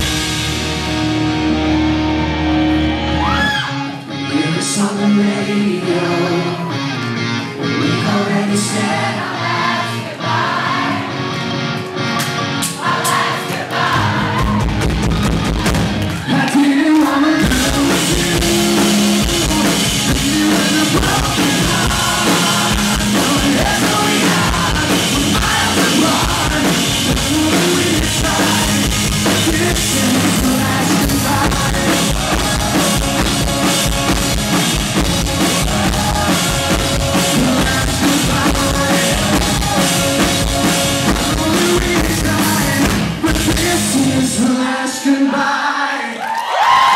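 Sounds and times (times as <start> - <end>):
rock band playing live: 0.0 - 44.9
lead singer with backing vocals: 7.6 - 11.0, 16.2 - 33.3, 35.4 - 40.3, 41.1 - 46.9.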